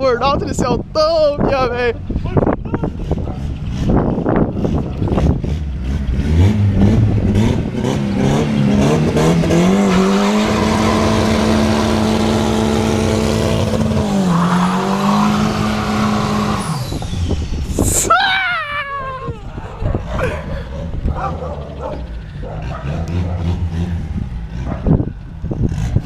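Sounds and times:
car engine revving high: 0:03.0 - 0:18.1, 0:21.0 - 0:26.0.

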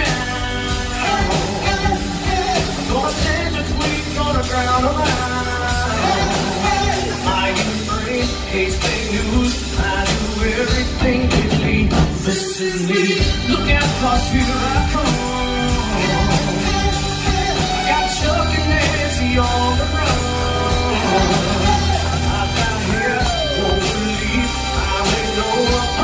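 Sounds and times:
bass line: 0:00.0 - 0:12.3, 0:13.2 - 0:26.0
live band music: 0:00.0 - 0:26.0
man singing in puppet voice: 0:00.0 - 0:26.0.

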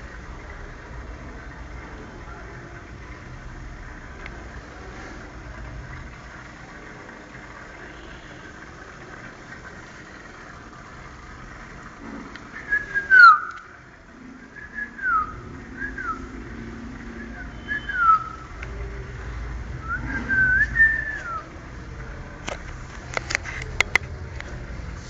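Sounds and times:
person whistling downward notes: 0:12.7 - 0:13.6, 0:14.6 - 0:16.3, 0:17.2 - 0:18.4, 0:19.8 - 0:21.5.

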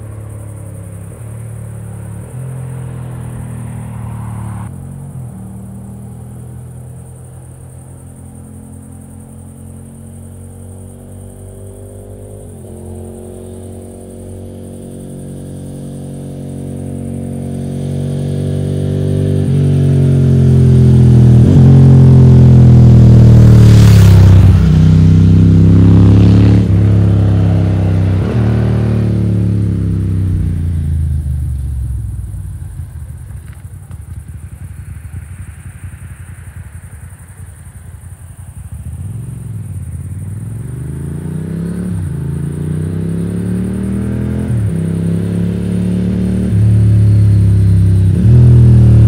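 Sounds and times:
motorcycle engine idling: 0:00.0 - 0:03.7, 0:30.2 - 0:40.8.

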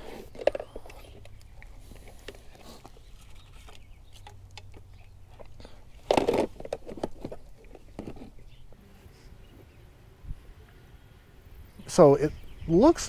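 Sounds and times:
plastic clatter: 0:00.1 - 0:08.6
plastic boxes clicking: 0:03.6 - 0:08.6.

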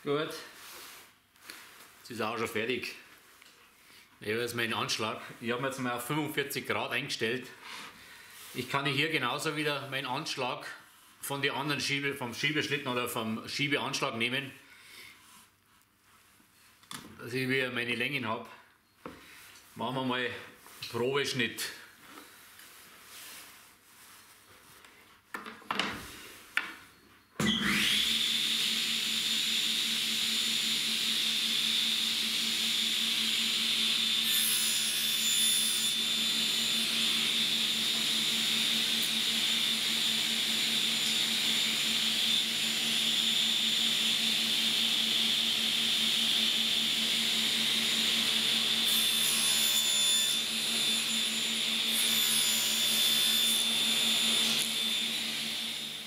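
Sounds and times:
table saw cutting wood: 0:27.4 - 0:56.0.

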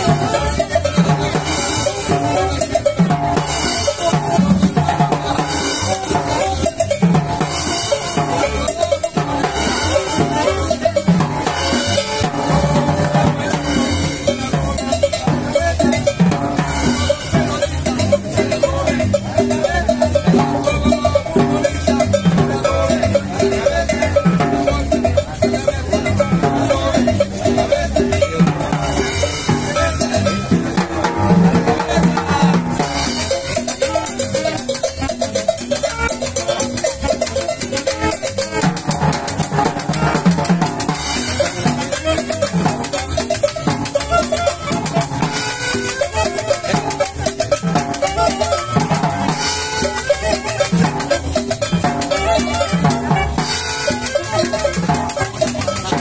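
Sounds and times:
cymbal beating dance rhythm: 0:00.0 - 0:56.0
saxophones: 0:00.0 - 0:56.0
street band playing cumbia: 0:00.0 - 0:56.0.

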